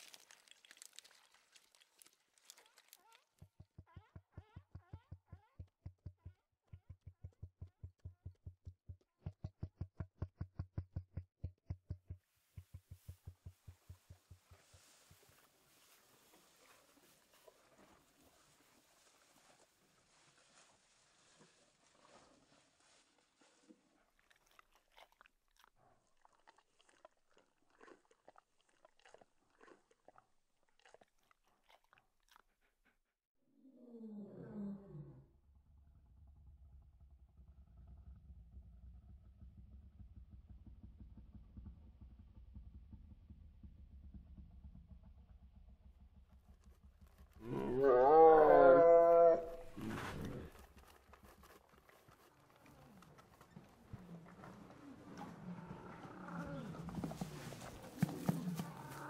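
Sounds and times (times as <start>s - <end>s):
faint clicking and crackling: 0.0s - 3.6s, 49.5s - 57.6s.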